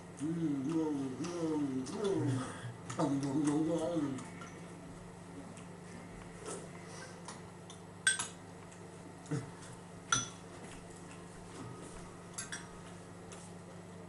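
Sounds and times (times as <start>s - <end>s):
spoons clinking against bowls: 7.7s - 8.4s, 10.1s - 10.4s, 12.4s - 12.8s.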